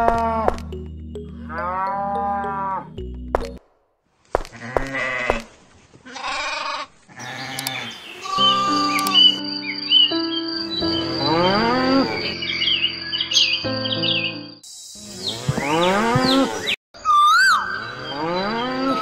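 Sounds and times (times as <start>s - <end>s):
background music with chirping: 0.0s - 3.6s, 7.2s - 19.0s
sheep bleating: 4.5s - 9.2s.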